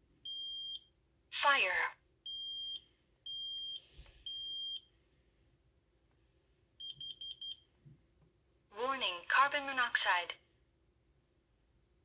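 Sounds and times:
alarm long beeps: 0:00.3 - 0:00.9, 0:02.3 - 0:04.9.

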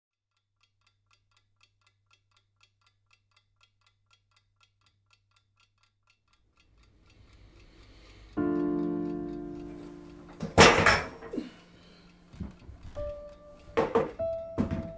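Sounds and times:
clock ticking: 0:00.3 - 0:14.9.

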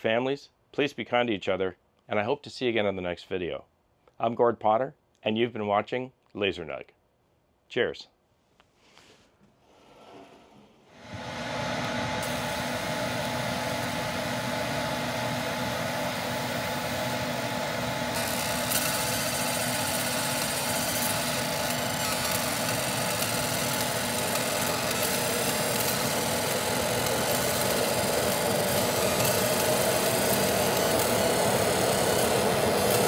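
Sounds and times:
machine whirring and humming: 0:11.0 - 0:33.0.

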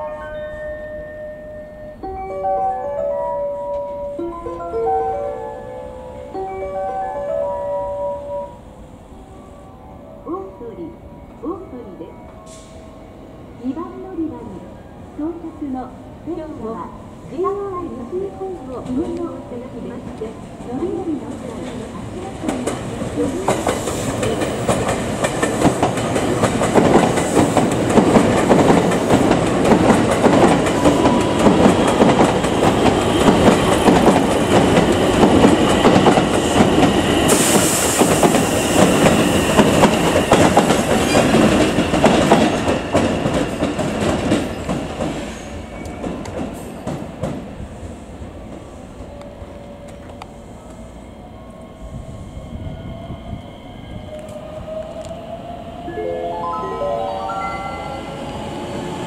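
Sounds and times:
high hiss: 0:37.3 - 0:38.9.

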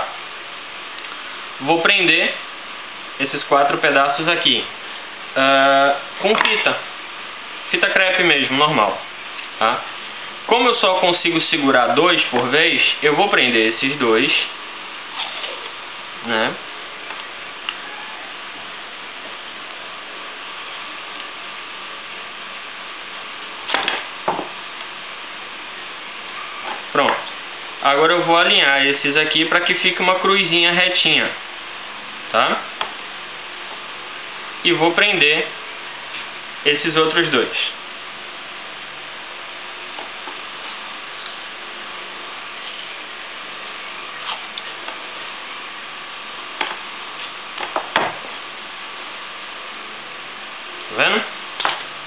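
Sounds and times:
steady background hiss: 0:00.0 - 0:52.0
tape crackling and tapping: 0:46.6 - 0:48.4.

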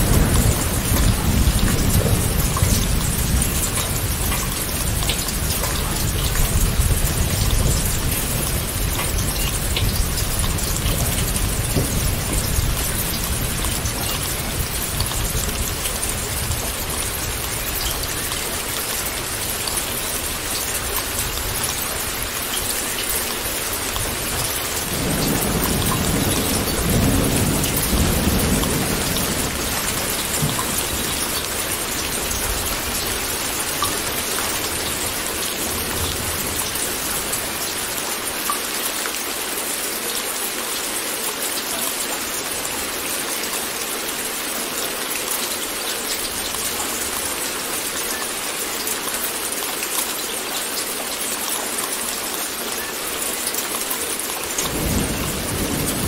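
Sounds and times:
low roll of thunder: 0:00.0 - 0:17.6, 0:24.0 - 0:33.4, 0:54.6 - 0:56.0
steady rain falling: 0:00.0 - 0:56.0.

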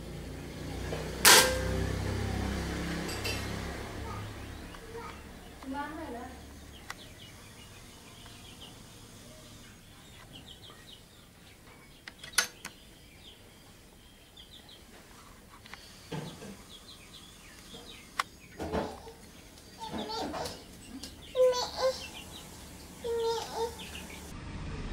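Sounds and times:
sharp crack: 0:01.2 - 0:01.8
small birds chirping: 0:01.9 - 0:24.3
hen clucking: 0:15.8 - 0:24.3.

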